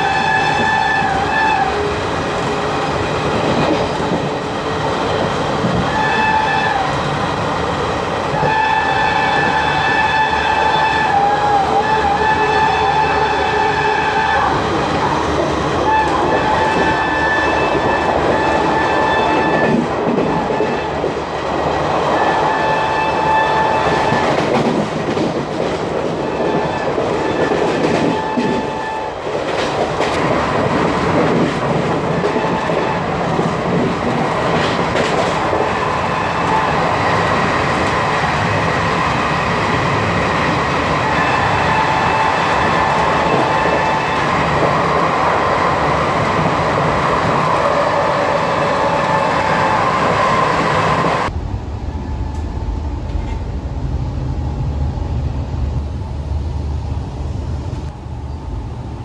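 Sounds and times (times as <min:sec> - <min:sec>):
rush of wind: 0:00.0 - 0:59.0
locomotive horn blasts: 0:08.4 - 0:14.6
train wheels clattering over rails: 0:23.8 - 0:35.9.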